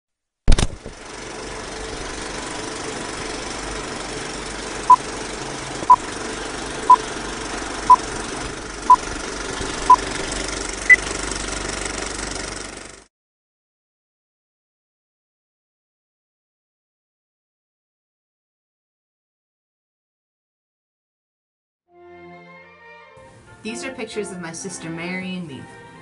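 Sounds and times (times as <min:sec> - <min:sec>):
mechanical running noise: 0:00.5 - 0:13.1.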